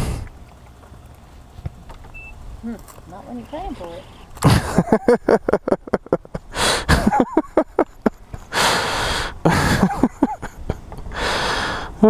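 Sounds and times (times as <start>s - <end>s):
person laughing hard: 4.4s - 8.8s, 9.4s - 10.9s.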